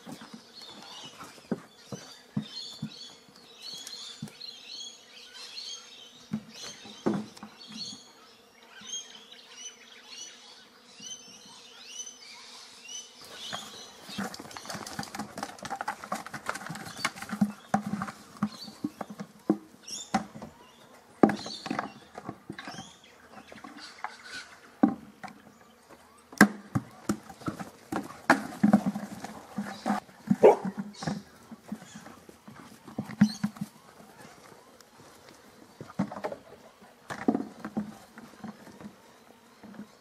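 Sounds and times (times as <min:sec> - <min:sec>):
dog paws thudding: 0:26.9 - 0:34.1.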